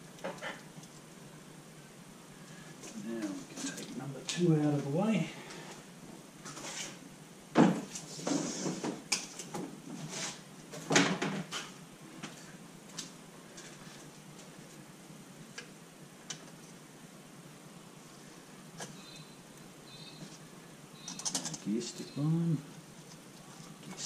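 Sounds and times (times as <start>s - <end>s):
parts and tools rattling: 21.0s - 21.7s.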